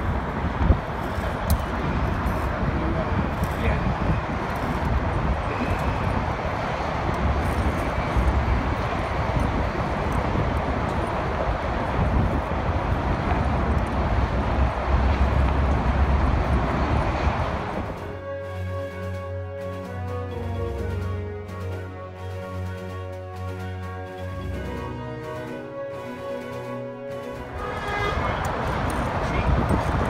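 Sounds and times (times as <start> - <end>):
steady roar of traffic: 0.0 - 30.0
wind buffeting microphone: 0.0 - 30.0
music: 17.9 - 30.0.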